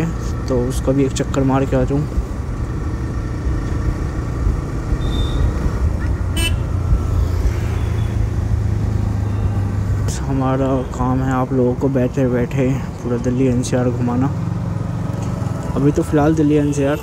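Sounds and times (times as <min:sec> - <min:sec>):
road noise: 0:00.0 - 0:17.0
vehicle horn toot: 0:05.0 - 0:05.6, 0:06.3 - 0:06.7.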